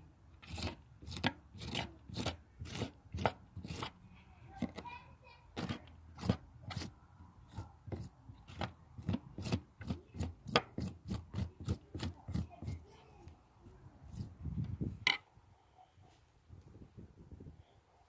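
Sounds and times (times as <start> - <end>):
knife scraping cactus spines: 0.4 - 4.9, 5.5 - 13.0, 14.0 - 15.2.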